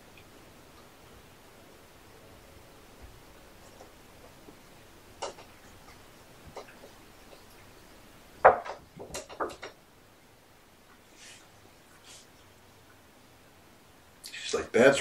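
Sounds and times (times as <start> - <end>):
sharp knocks and clicks: 5.2 - 7.7, 8.4 - 9.8.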